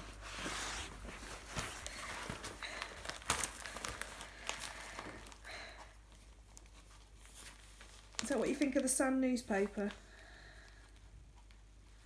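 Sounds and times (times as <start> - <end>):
newspaper rustling and crinkling: 0.0 - 12.0
paper crackles: 0.0 - 12.0.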